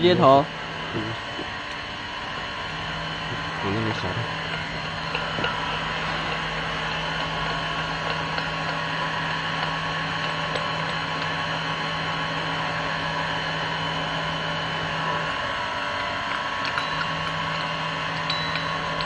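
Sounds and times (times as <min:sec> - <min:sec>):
machine hum: 0:00.0 - 0:19.0
low steady tone: 0:15.9 - 0:19.0.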